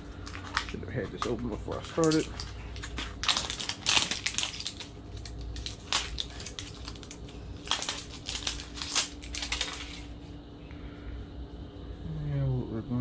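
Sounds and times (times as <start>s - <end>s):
plastic wrapping crackling: 0.0s - 10.2s.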